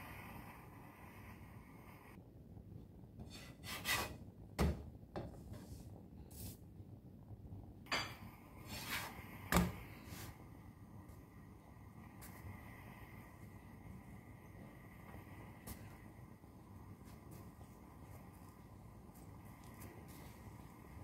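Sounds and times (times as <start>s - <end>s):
spatula scraping frying pan: 3.2s - 4.2s, 8.0s - 10.4s.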